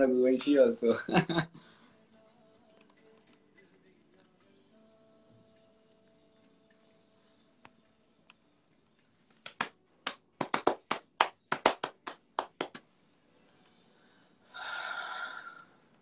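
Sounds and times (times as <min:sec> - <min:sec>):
person clapping: 0:09.3 - 0:12.9.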